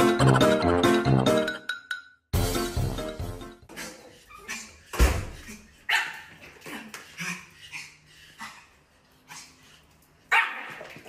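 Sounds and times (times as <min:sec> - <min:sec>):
small dog yipping and barking: 0:10.3 - 0:10.8.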